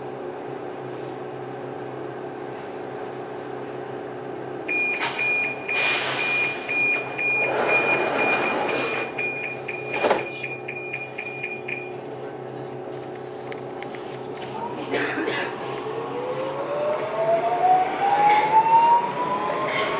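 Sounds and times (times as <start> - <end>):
high-pitched warning beeps: 4.7 - 12.0, 15.5 - 19.9.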